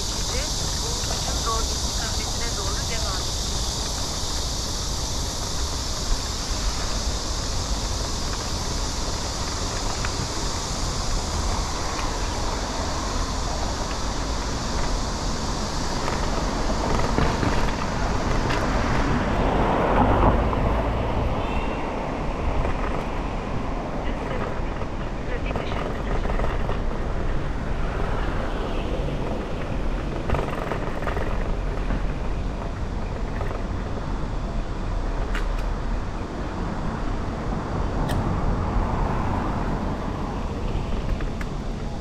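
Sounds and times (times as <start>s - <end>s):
steady high hiss: 0.0s - 19.9s
street traffic: 0.0s - 42.0s
wind rumbling on microphone: 0.0s - 42.0s.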